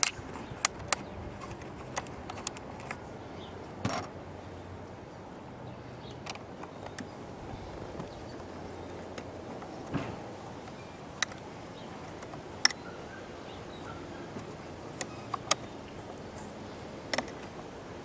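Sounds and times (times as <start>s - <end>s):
metal and plastic fittings clicking: 0.0s - 3.0s, 14.3s - 16.5s
steady background noise: 0.0s - 18.0s.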